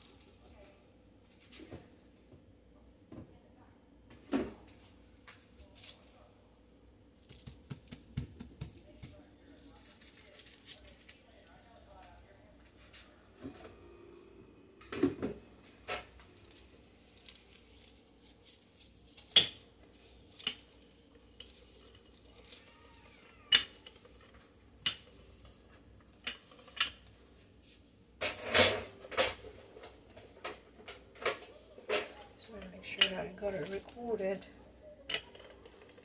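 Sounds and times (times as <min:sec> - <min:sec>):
utensils and bowls clinking: 0:18.7 - 0:27.2, 0:28.2 - 0:36.0
kitchenware clattering: 0:19.1 - 0:27.2, 0:28.2 - 0:36.0.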